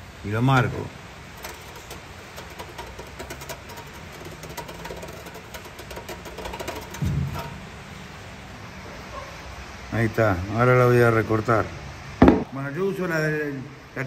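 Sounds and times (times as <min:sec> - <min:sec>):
faint steady hum: 0:00.0 - 0:14.0
metal scribe scratching on steel: 0:01.3 - 0:07.7
low thud: 0:12.2 - 0:12.6.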